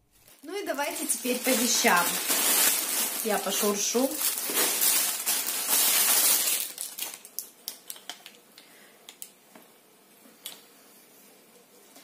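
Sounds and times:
plastic packaging rustling: 0.0s - 8.4s
plastic crinkles and ticks: 0.2s - 9.6s.

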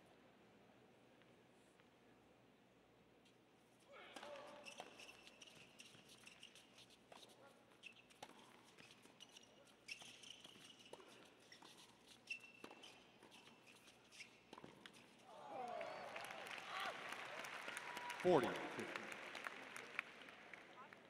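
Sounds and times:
shoes squeaking on court: 4.2s - 15.3s.

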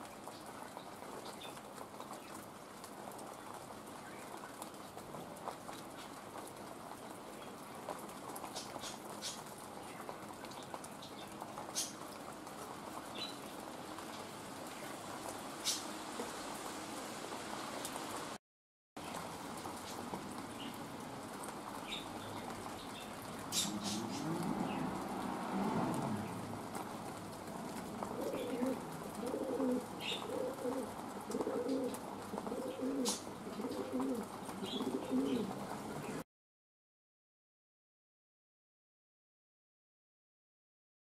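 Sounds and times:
steady rain: 0.0s - 18.4s, 19.0s - 36.2s
pigeon cooing: 23.5s - 25.0s, 28.0s - 35.6s.

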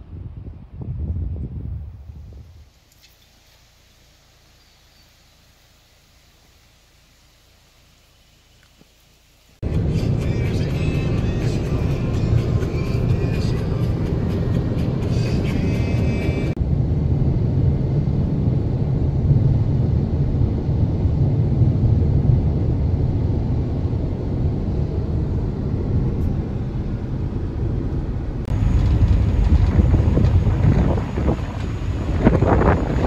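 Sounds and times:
gusty wind on microphone: 0.0s - 2.7s, 9.6s - 33.0s
car driving on highway from inside: 9.6s - 33.0s.

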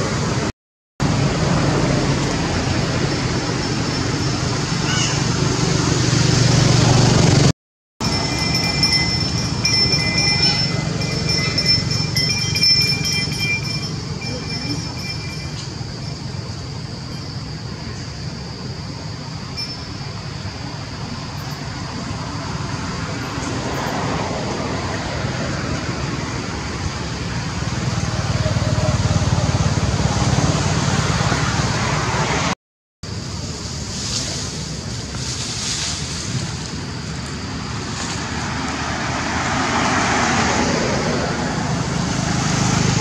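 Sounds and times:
rushing outdoor noise: 0.0s - 43.0s
vehicle passing: 1.0s - 15.0s, 37.8s - 43.0s.

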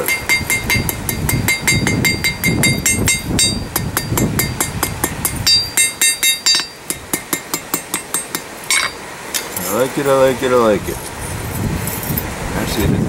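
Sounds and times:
hammer striking metal on anvil: 0.0s - 9.5s
metallic ring of anvil: 0.0s - 9.7s.

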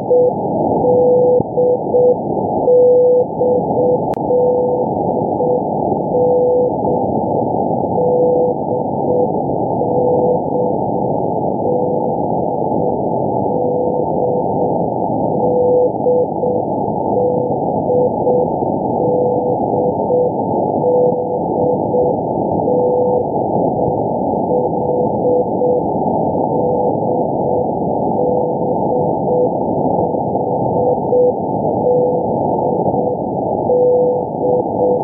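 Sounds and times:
morse code tone: 0.0s - 6.7s, 17.2s - 22.1s.

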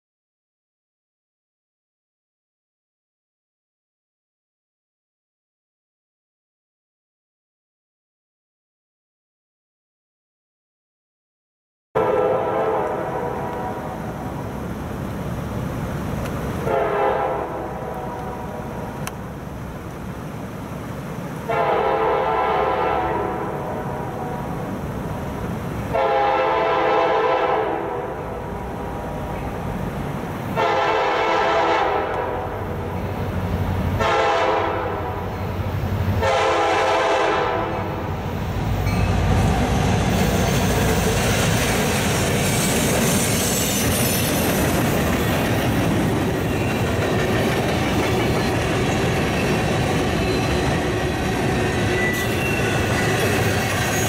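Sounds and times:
train air horn blasts: 12.0s - 14.2s, 16.6s - 18.9s, 21.5s - 24.6s, 25.9s - 29.0s, 30.6s - 32.7s, 34.0s - 35.5s, 36.2s - 38.1s
train cars rolling past: 12.0s - 54.0s.

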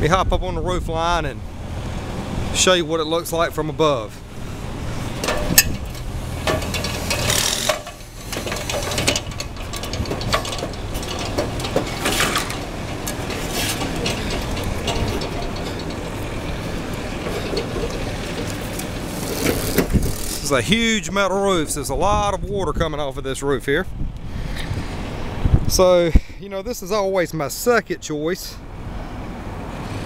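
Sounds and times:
steady low hum: 0.3s - 23.0s
knocks and clanks on metal ladder: 5.2s - 20.0s.

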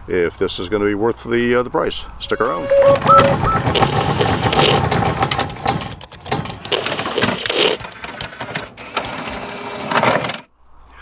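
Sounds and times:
rapid mechanical clicking and rattling: 3.6s - 10.4s.

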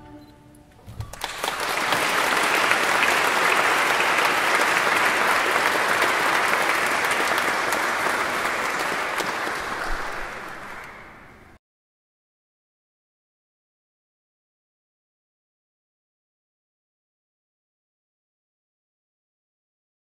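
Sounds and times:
audience applauding: 1.1s - 11.6s.

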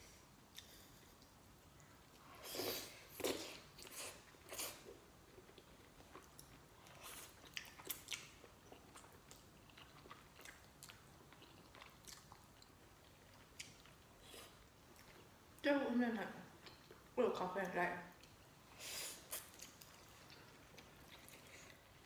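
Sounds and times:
wet chewing: 5.4s - 15.3s.

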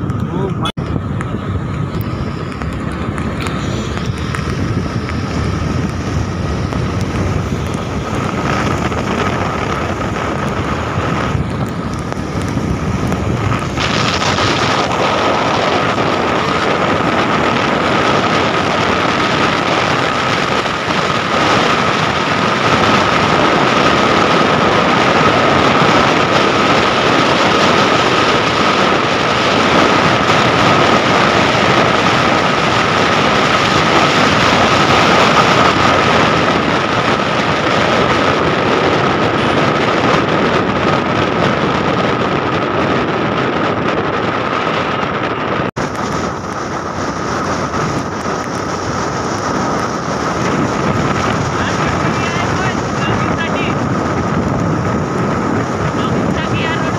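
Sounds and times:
thin steady whine: 0.0s - 16.2s
scooter engine and road noise: 0.0s - 56.9s
wind rushing over microphone: 0.0s - 56.9s.

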